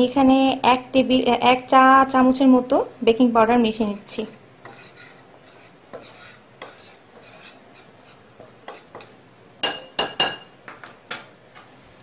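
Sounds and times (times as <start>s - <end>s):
spoon scraping ceramic bowl: 3.8s - 10.5s
spoon clinking against bowl: 9.6s - 11.0s.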